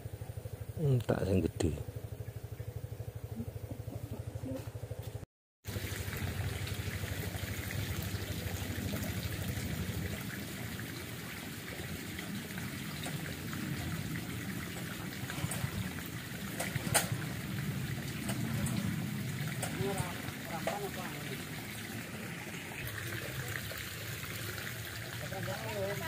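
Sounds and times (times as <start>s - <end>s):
low rhythmic rumble: 0.0s - 26.0s
water trickling in stream: 5.6s - 26.0s.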